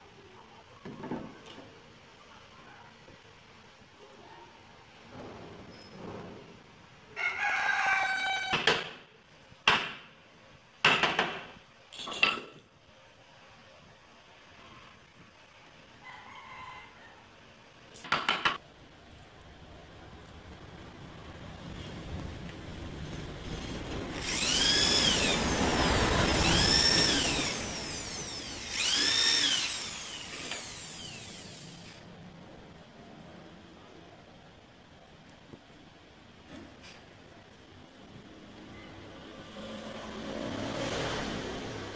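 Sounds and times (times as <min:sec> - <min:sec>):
rooster crowing: 0:07.2 - 0:08.6, 0:16.0 - 0:17.4
electric drill boring into wood: 0:24.1 - 0:32.0.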